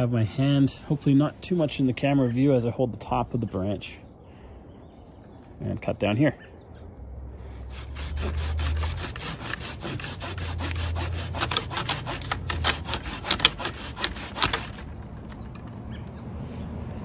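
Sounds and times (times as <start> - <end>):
hand saw cutting branch: 7.5 - 15.0.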